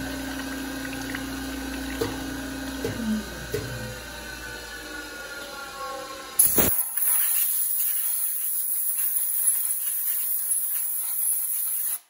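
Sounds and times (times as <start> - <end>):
air blow gun hissing: 6.4 - 12.0.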